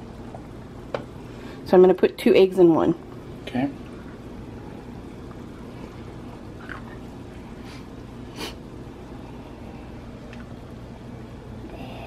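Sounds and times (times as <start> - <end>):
water boiling in saucepan: 0.0 - 11.8.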